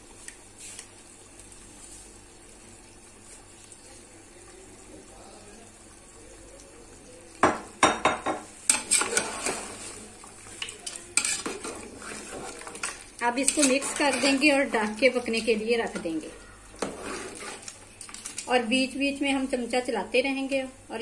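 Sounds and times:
spoon knocking on pot: 0:07.4 - 0:08.8
metal spoon scraping cooking pot: 0:08.7 - 0:09.8, 0:10.8 - 0:14.8, 0:16.8 - 0:17.7.

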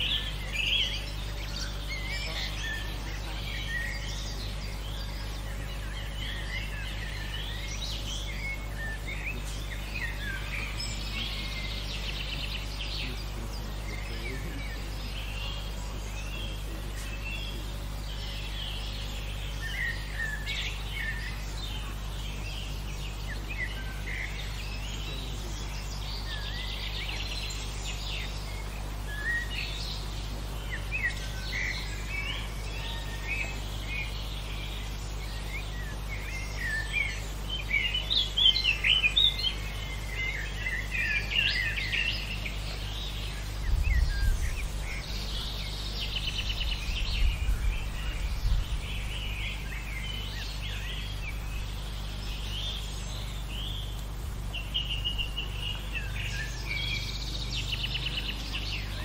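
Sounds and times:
songbirds chirping and singing: 0:00.0 - 0:59.0
steady low hum: 0:00.0 - 0:59.0
low rumbles: 0:43.0 - 0:59.0.

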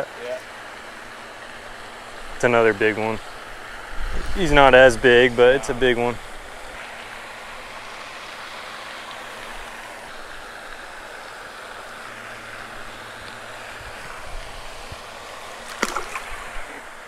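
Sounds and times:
water rushing: 0:00.0 - 0:17.0.

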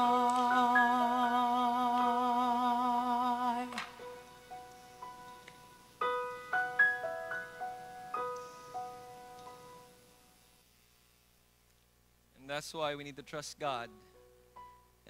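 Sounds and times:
keyboard chord with vibrato: 0:06.0 - 0:09.9.

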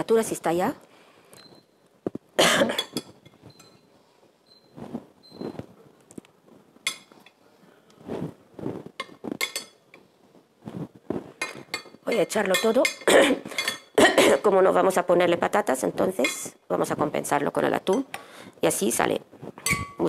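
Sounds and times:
cutlery clinking on glass bowl: 0:02.7 - 0:03.8, 0:06.8 - 0:07.4, 0:09.0 - 0:10.0, 0:11.4 - 0:14.5, 0:19.6 - 0:20.0.

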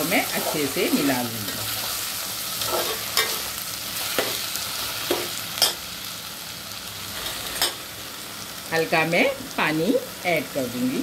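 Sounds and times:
food sizzling in a pot: 0:00.0 - 0:11.0
metal spatula scraping a pot: 0:02.6 - 0:03.5.

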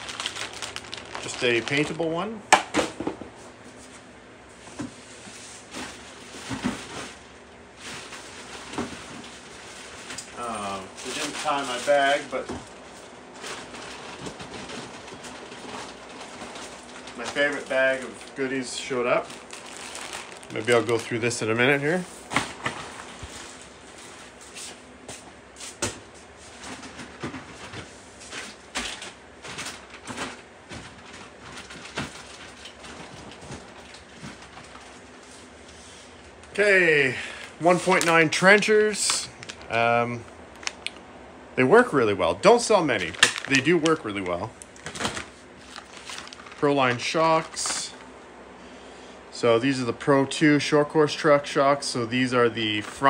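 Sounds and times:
packaging rustling and crinkling: 0:00.0 - 0:02.3, 0:04.9 - 0:24.4, 0:26.6 - 0:35.5, 0:37.4 - 0:41.0, 0:42.9 - 0:48.1.

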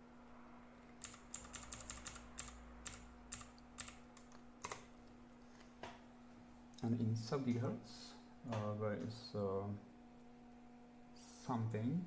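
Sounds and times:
computer keyboard keys clicking: 0:01.0 - 0:04.9.

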